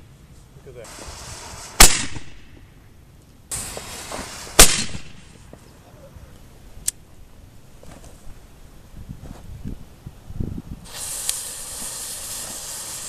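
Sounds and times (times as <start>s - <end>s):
burning fuse hissing: 0.6s - 2.5s, 3.5s - 5.5s, 10.8s - 13.0s.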